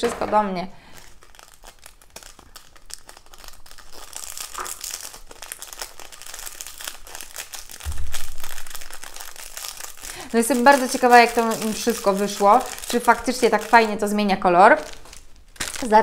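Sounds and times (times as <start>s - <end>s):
plastic bag crinkling: 0.0s - 16.0s
dull bump: 7.8s - 9.2s.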